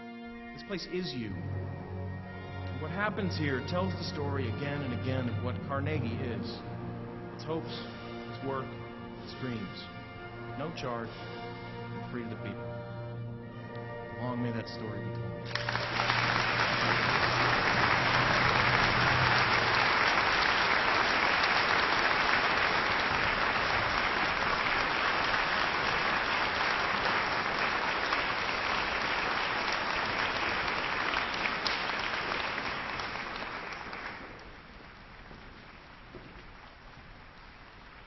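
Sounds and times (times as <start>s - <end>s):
audience applauding: 15.4s - 38.0s.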